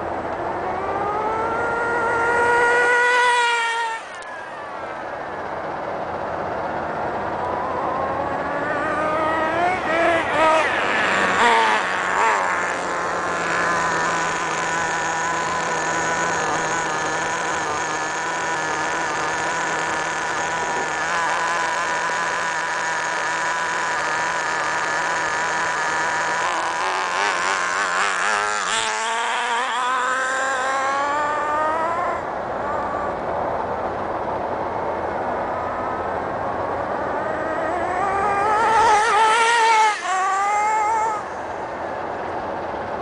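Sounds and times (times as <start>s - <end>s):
rc car engine whining: 0.0s - 43.0s.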